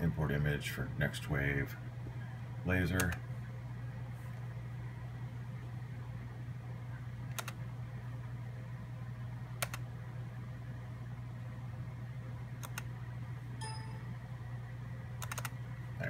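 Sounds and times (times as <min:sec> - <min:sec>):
steady low hum: 0:00.0 - 0:16.0
computer mouse clicks: 0:03.0 - 0:03.2, 0:07.3 - 0:07.6, 0:09.6 - 0:09.8, 0:12.6 - 0:12.9, 0:15.2 - 0:15.6.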